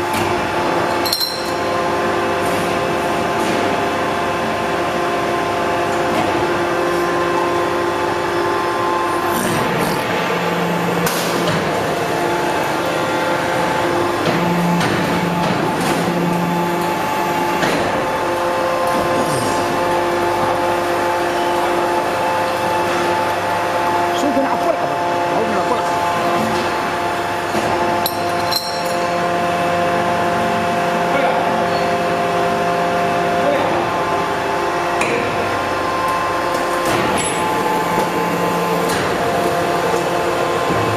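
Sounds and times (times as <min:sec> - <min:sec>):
press machine hum: 0:00.0 - 0:40.9
sharp metal clanks: 0:01.0 - 0:01.6, 0:28.0 - 0:29.0.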